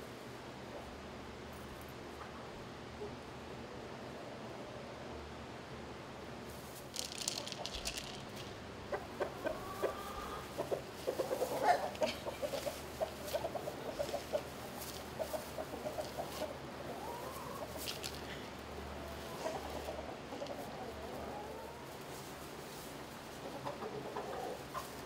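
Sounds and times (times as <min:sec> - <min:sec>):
dry hay rustling: 0:06.4 - 0:25.0
chickens clucking: 0:06.5 - 0:25.0
rising chicken calls: 0:08.8 - 0:22.1.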